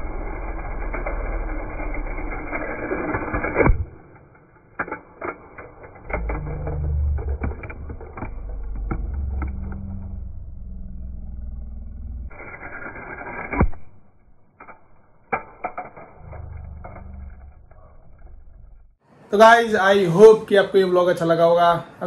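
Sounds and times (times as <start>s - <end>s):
toy car rolling on tiles: 0.0s - 10.4s.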